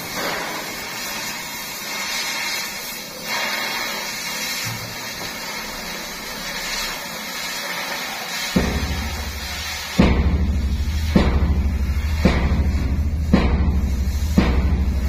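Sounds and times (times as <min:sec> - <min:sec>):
power tool whirring and hissing: 0:00.0 - 0:11.2.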